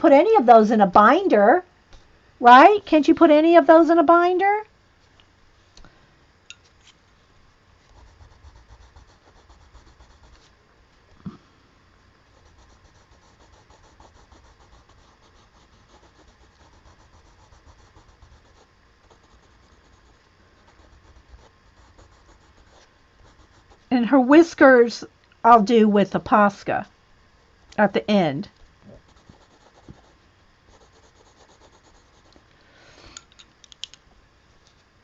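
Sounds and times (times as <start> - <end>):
pencil scratching on paper: 7.8 - 10.5, 12.3 - 23.9, 29.0 - 32.4
small clicks: 33.2 - 34.0.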